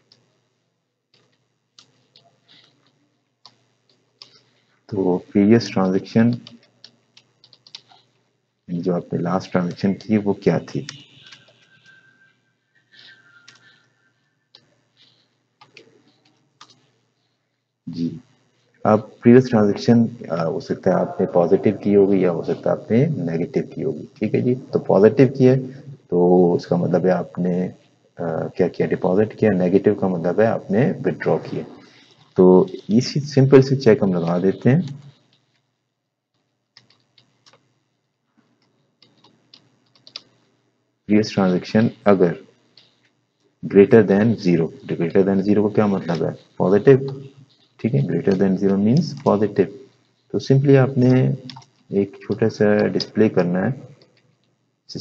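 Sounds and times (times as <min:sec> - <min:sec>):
keyboard keys clicking: 0:06.3 - 0:08.0, 0:39.0 - 0:40.3
faint keyboard keystrokes: 0:39.0 - 0:40.3.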